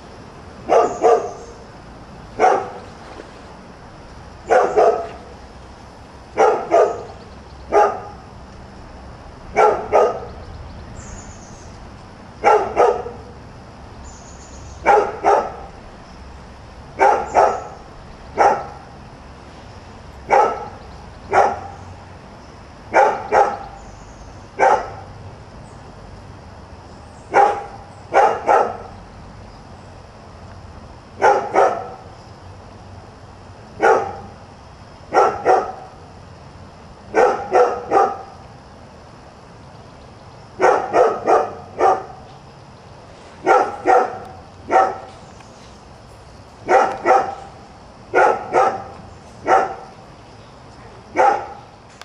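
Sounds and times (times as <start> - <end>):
dog barking: 0.6 - 1.6, 2.4 - 2.8, 4.4 - 5.3, 6.4 - 8.2, 9.5 - 10.4, 12.4 - 13.4, 14.8 - 15.7, 17.0 - 17.8, 18.4 - 18.9, 20.3 - 21.8, 22.9 - 23.7, 24.6 - 25.1, 27.3 - 28.9, 31.2 - 32.0, 33.8 - 34.4, 35.1 - 36.0, 37.1 - 38.4, 40.6 - 42.2, 43.4 - 45.1, 46.6 - 49.9, 51.1 - 51.7.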